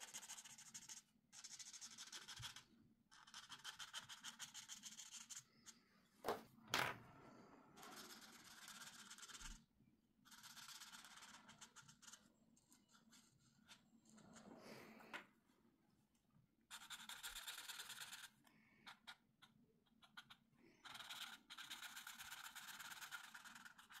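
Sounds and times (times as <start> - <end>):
marker scratching on paper: 0.0 - 5.8, 7.8 - 9.6, 10.2 - 14.5, 16.7 - 18.3, 18.9 - 24.0.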